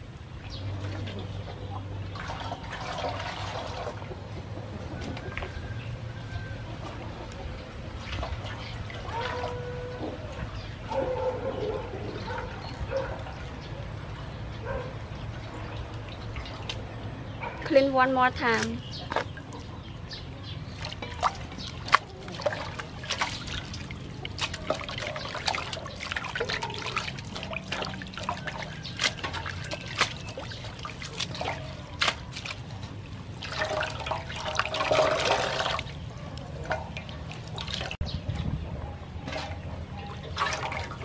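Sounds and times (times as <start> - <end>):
hands splashing in water basin: 2.1 - 4.2, 20.6 - 38.0, 40.2 - 41.0.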